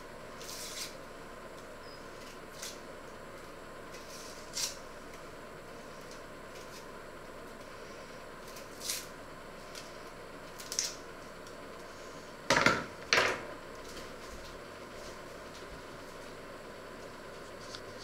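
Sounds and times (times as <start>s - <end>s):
knocks on counter: 12.5s - 13.4s.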